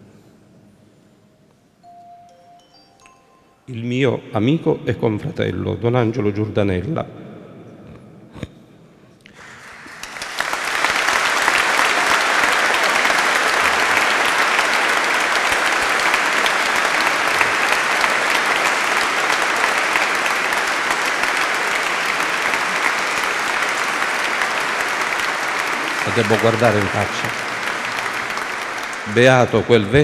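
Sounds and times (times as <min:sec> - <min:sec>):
crowd applauding: 0:09.3 - 0:30.0.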